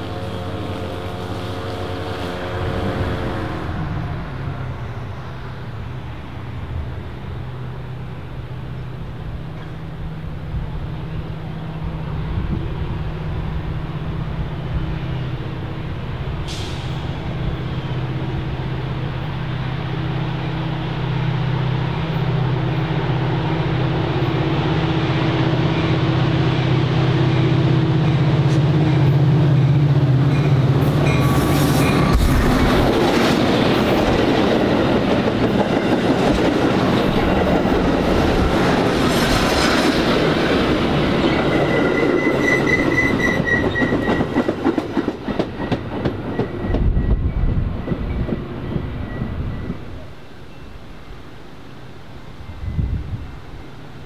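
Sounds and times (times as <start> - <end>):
diesel locomotive engine droning: 0.0 - 54.0
short high hiss: 16.5 - 17.2.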